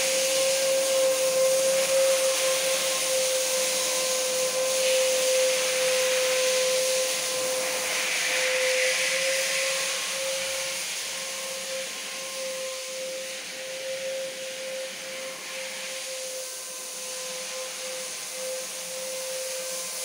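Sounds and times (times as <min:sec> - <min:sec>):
electric motor blowing air: 0:00.0 - 0:20.0.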